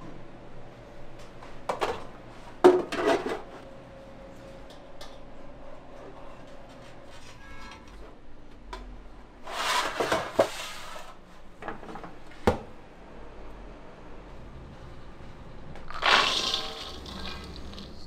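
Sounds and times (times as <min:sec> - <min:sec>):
rustling or scraping: 0:09.4 - 0:11.2.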